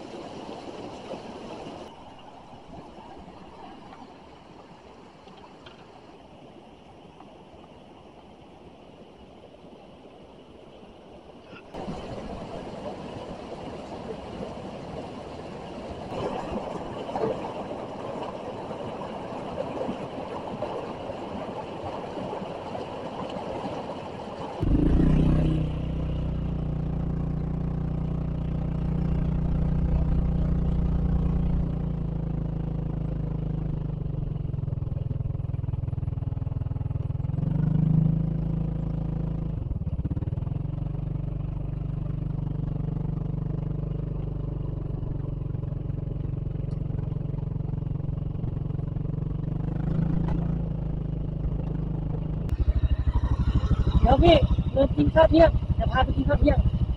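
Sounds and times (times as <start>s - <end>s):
motorcycle engine running: 24.6s - 56.9s.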